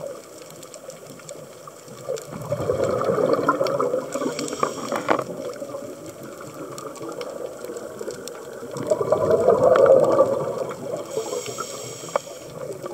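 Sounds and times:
exhaled bubbles bursting: 0:01.9 - 0:11.4
diver breathing through regulator: 0:04.1 - 0:05.4, 0:11.0 - 0:12.6.

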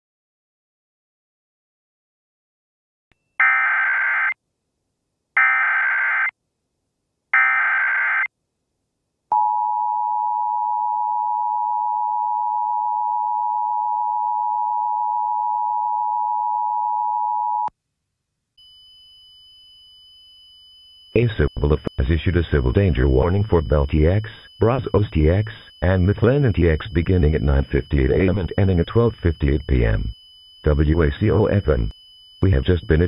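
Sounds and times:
harsh digital data tones: 0:19.9 - 0:33.0.

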